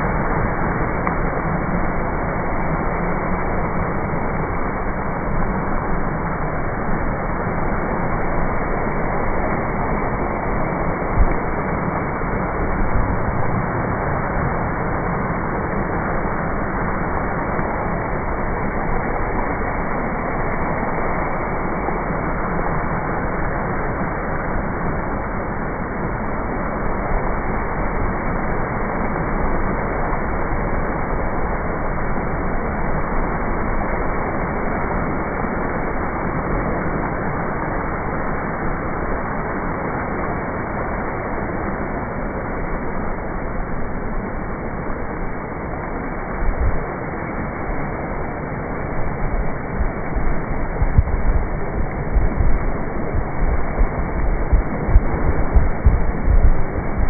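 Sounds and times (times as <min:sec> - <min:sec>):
water rushing: 0:00.0 - 0:57.0
low bumps: 0:49.8 - 0:57.0.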